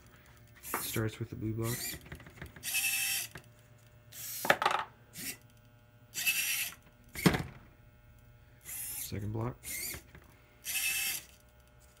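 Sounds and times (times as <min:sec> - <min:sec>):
servo motors whirring: 0:01.6 - 0:02.0, 0:02.6 - 0:03.4, 0:04.1 - 0:04.5, 0:05.1 - 0:05.5, 0:06.1 - 0:07.4, 0:08.6 - 0:12.0.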